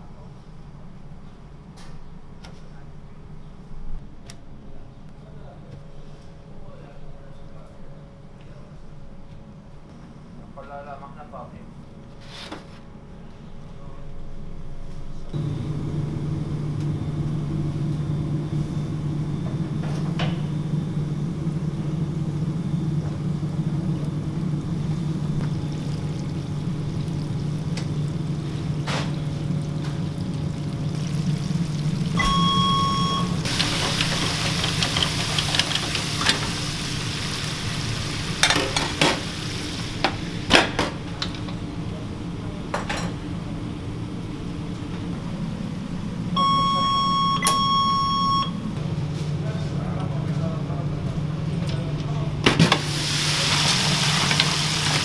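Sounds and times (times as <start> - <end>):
kitchen equipment hum: 14.9 - 55.0
chicken sizzling in hot oil: 24.4 - 40.5, 52.8 - 55.0
short electronic beep: 32.2 - 33.4, 46.4 - 48.6.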